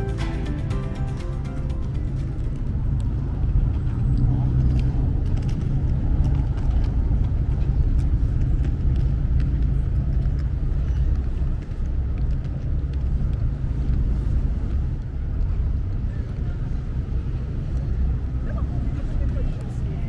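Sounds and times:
boat engine rumbling: 0:00.0 - 0:20.0.

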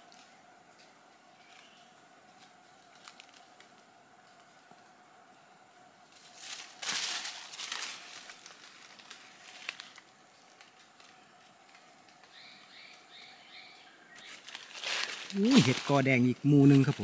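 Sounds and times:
faint steady high tone: 0:01.3 - 0:02.0
dry leaves rustling and crunching: 0:02.4 - 0:03.6, 0:06.1 - 0:11.2, 0:14.2 - 0:17.0.

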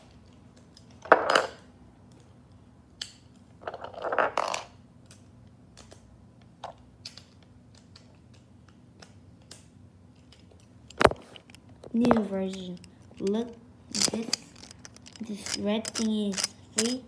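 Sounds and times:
plastic parts rustling scrape: 0:12.8 - 0:17.0.

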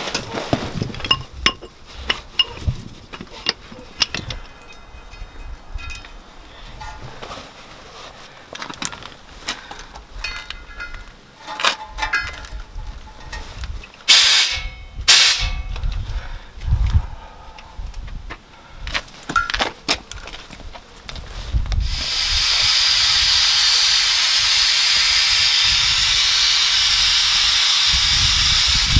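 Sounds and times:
sharp air hissing bursts: 0:14.1 - 0:15.7, 0:21.8 - 0:28.9.

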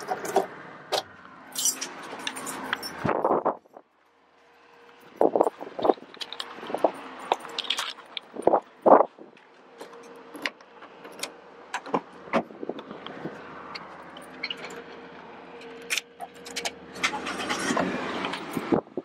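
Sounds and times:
jingling keys: 0:01.6 - 0:03.1.

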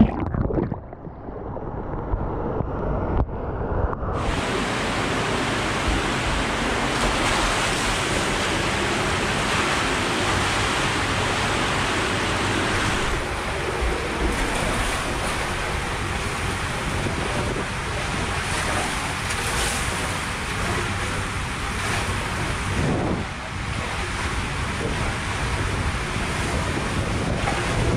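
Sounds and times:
water rushing in tube slide: 0:00.0 - 0:02.2, 0:04.2 - 0:27.9
wind buffeting microphone: 0:22.4 - 0:27.9.

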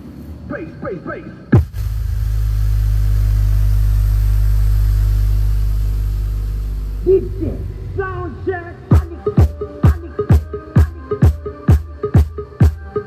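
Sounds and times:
deep bass note from subwoofer: 0:01.5 - 0:09.6.

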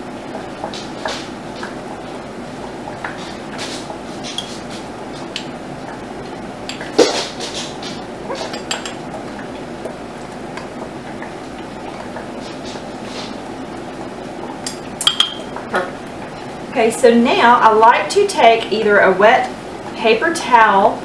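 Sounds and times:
spoon clinking against glass jars: 0:08.4 - 0:09.0.

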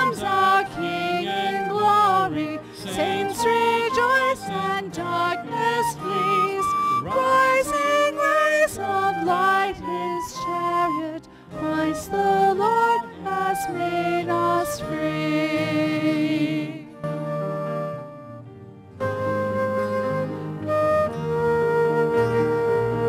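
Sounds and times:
hymn singing: 0:00.0 - 0:18.4
instrumental accompaniment: 0:00.0 - 0:23.0.

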